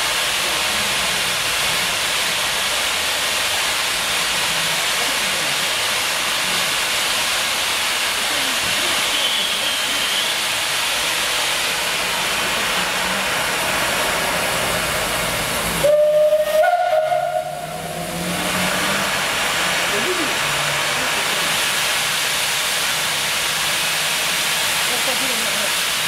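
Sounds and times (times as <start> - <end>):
steam hissing: 0.0 - 26.0
steam whistle blast: 15.8 - 18.0.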